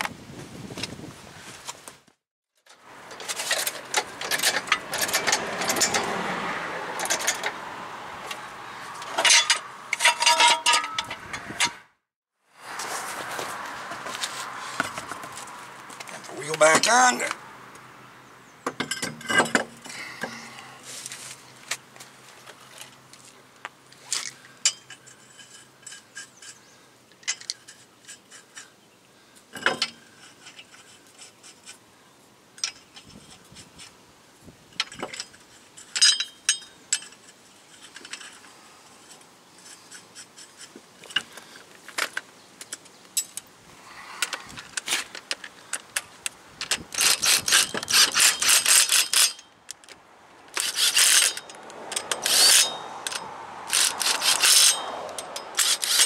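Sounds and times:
lug nuts clinking: 2.7s - 6.2s, 7.0s - 7.6s, 9.0s - 11.8s, 18.6s - 20.4s, 34.7s - 43.5s, 44.2s - 56.0s.

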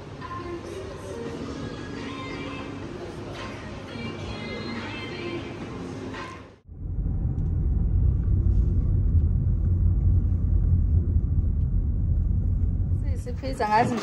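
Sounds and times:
car cabin road rumble: 6.7s - 13.9s.

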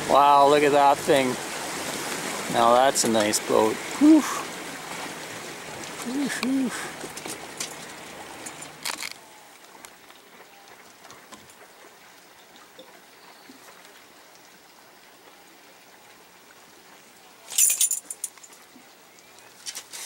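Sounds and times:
water lapping against hull: 0.0s - 17.2s.

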